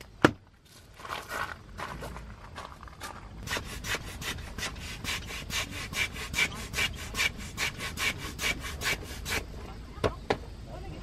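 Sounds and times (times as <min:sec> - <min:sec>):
hand air pump strokes: 0:03.4 - 0:09.6.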